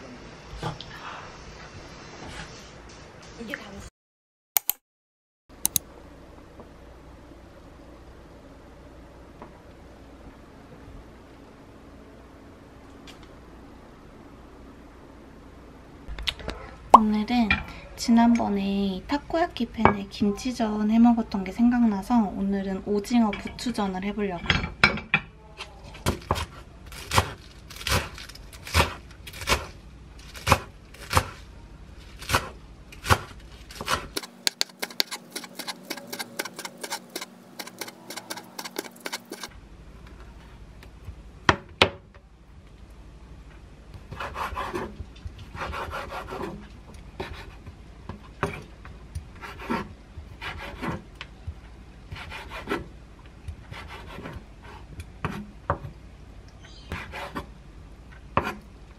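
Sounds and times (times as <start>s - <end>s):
knife chopping on wooden board: 30.4s - 31.4s, 32.2s - 39.5s, 58.4s - 58.6s
knife slicing squid: 32.2s - 39.5s.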